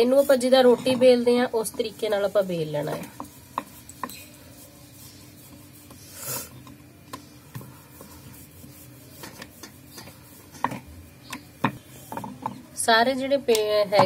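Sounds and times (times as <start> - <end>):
rolling pin rubbing on dough: 0.0 - 12.6
wood knocking on wood: 10.6 - 12.6.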